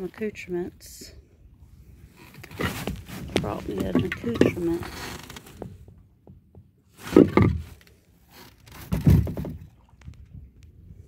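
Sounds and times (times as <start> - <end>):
dull heavy thumps: 8.8 - 9.7.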